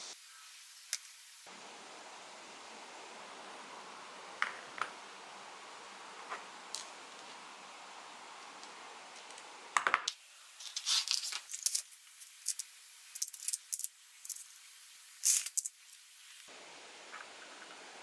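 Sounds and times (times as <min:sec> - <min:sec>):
metal screws clinking in plastic trays: 0:10.6 - 0:14.5, 0:15.2 - 0:15.8.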